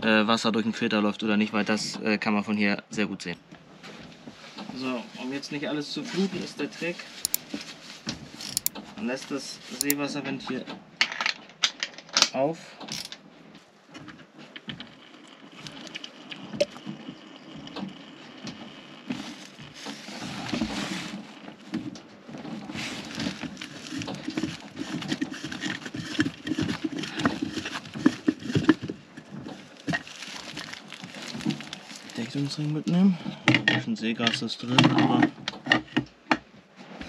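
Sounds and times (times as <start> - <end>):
rustling with clicks and knocks: 6.0 - 9.0, 19.1 - 32.8
plastic lid unscrewing: 8.4 - 8.8, 22.6 - 32.2.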